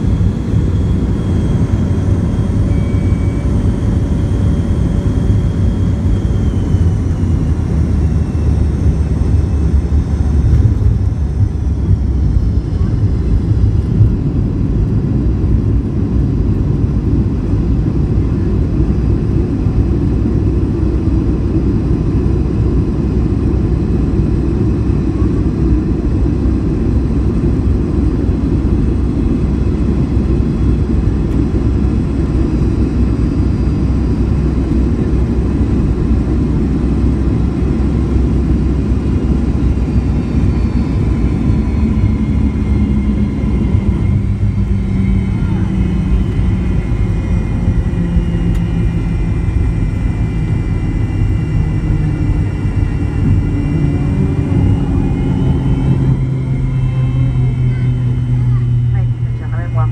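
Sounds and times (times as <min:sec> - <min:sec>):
airliner cabin rumble: 0:00.0 - 0:59.9
faint jet engine whine: 0:00.0 - 0:59.9.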